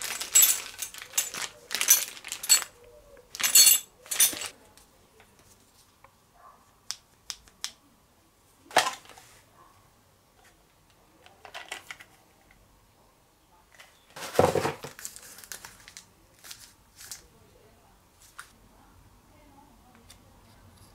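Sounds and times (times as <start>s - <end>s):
hardware parts clicking and knocking: 0.0s - 2.7s, 3.3s - 4.5s, 11.2s - 12.6s
plastic bag crinkling: 0.0s - 4.6s, 14.2s - 17.2s.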